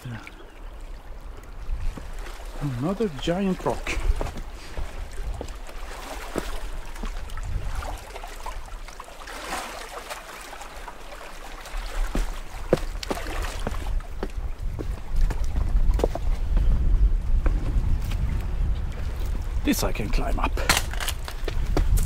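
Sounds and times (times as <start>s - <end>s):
small waves lapping on rocks: 0.0s - 14.2s
wind rumble on microphone: 1.0s - 2.6s, 3.8s - 5.7s, 6.4s - 8.8s, 11.9s - 22.0s.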